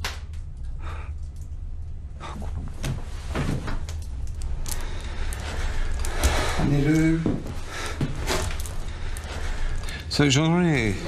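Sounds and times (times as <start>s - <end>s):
steady low hum: 0.0s - 11.0s
soft knocks and rustles: 2.5s - 4.0s.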